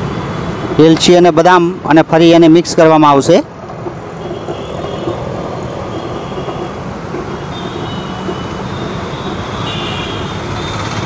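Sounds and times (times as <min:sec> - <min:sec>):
street traffic noise: 0:00.0 - 0:11.0.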